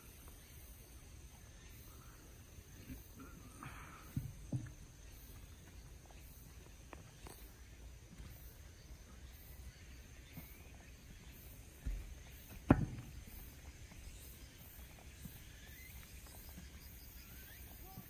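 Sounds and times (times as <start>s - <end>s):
footsteps on stone path: 3.6s - 18.0s
dull thump: 4.1s - 4.8s, 11.8s - 13.5s.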